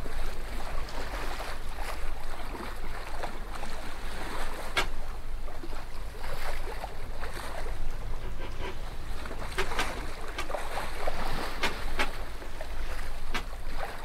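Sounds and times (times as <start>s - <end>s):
water splashing along boat hull: 0.0s - 14.0s
steady low rumble: 5.0s - 14.0s.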